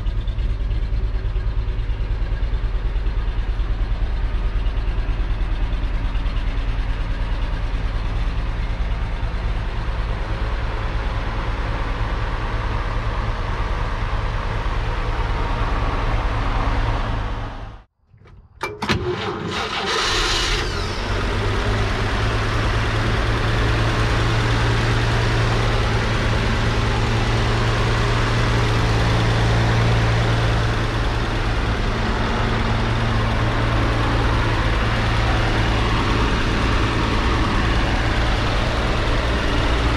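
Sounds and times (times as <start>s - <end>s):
truck engine idling: 0.0s - 39.9s
clicks: 18.1s - 19.3s.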